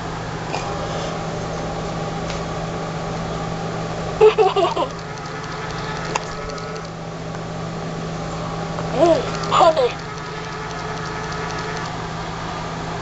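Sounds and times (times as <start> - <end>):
steady low hum: 0.0 - 13.0
click: 4.8 - 6.9, 9.3 - 12.0
toy recorded voice clip: 9.0 - 10.0.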